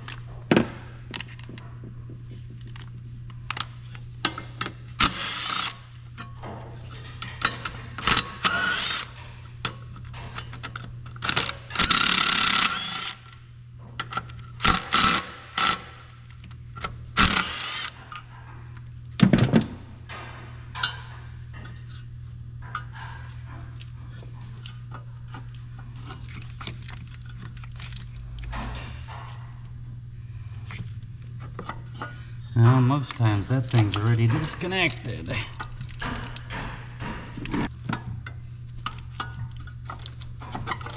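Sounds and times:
steady low hum: 0:00.0 - 0:40.9
hand tools clinking on metal: 0:32.6 - 0:36.2.

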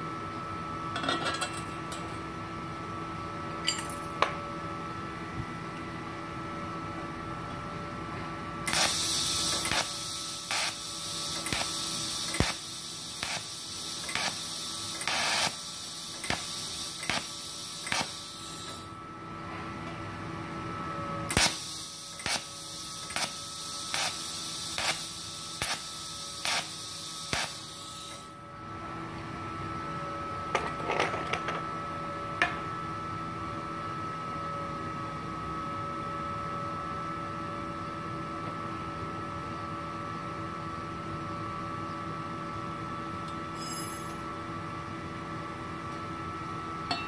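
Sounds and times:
faint machine hum: 0:00.0 - 0:47.0
welding arc hissing: 0:08.7 - 0:19.0, 0:21.3 - 0:28.4.

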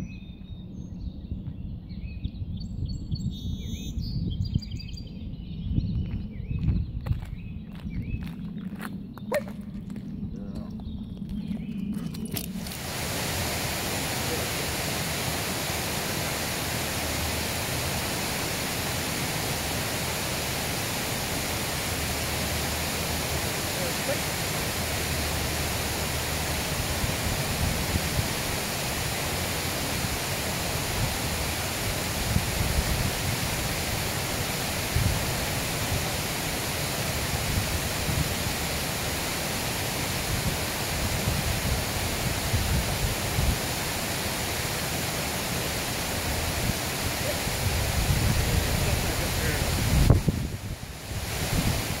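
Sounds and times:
wind buffeting microphone: 0:00.0 - 0:44.4, 0:45.7 - 0:52.0
river water rushing over rocks: 0:12.4 - 0:52.0.

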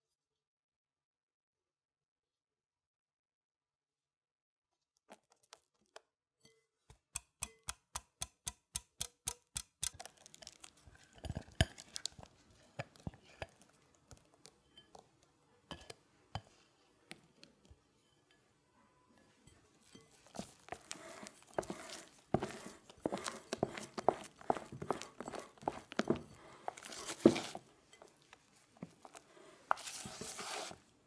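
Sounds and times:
soft scraping in a bowl: 0:17.6 - 0:31.0.

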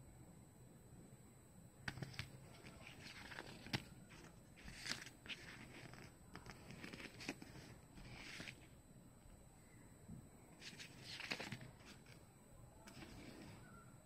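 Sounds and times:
paper rustling: 0:01.9 - 0:08.8, 0:10.6 - 0:12.2, 0:12.8 - 0:13.8.

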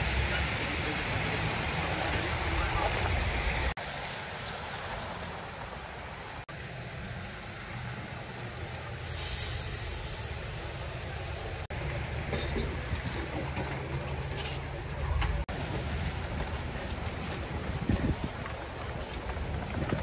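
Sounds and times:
steady rain: 0:00.0 - 0:12.2
traffic noise: 0:00.0 - 0:20.0
buses idling hum: 0:05.8 - 0:19.9
air brakes hissing: 0:09.0 - 0:11.1.

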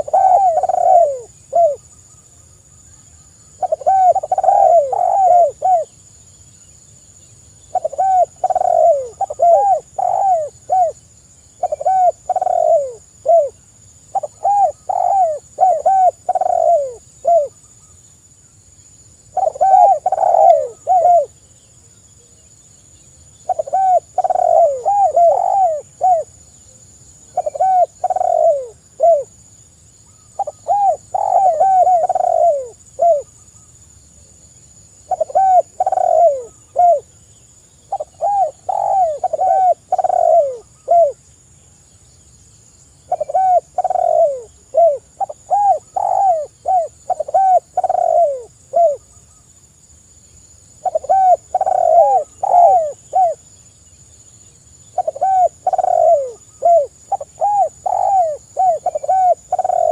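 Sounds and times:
dove cooing: 0:00.0 - 0:01.8, 0:03.6 - 0:06.0, 0:07.7 - 0:11.0, 0:11.6 - 0:17.6, 0:19.3 - 0:21.4, 0:23.4 - 0:26.4, 0:27.3 - 0:29.3, 0:30.3 - 0:33.3, 0:35.1 - 0:37.1, 0:37.9 - 0:41.2, 0:43.0 - 0:49.2, 0:50.8 - 0:53.5, 0:54.9 - 0:59.9.

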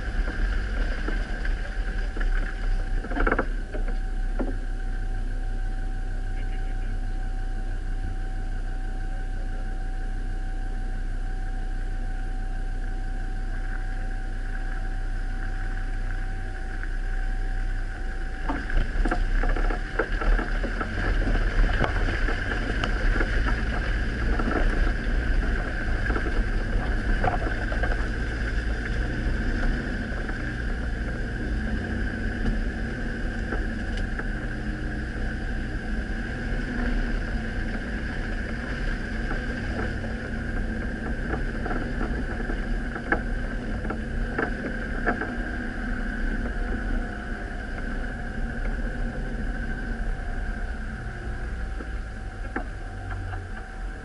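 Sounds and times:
knocks and rattles from bumps: 0:00.0 - 0:04.6
vehicle engine running: 0:00.0 - 0:54.0.

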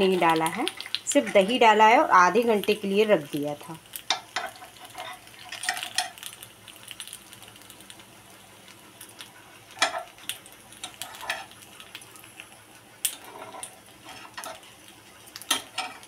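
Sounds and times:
frying sizzle: 0:00.0 - 0:16.0.

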